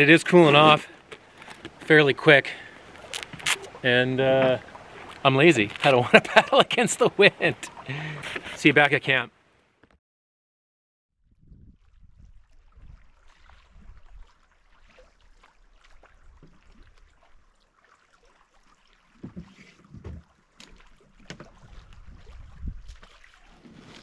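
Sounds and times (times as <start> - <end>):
wind rumbling on microphone: 11.2 - 14.3, 21.3 - 24.0.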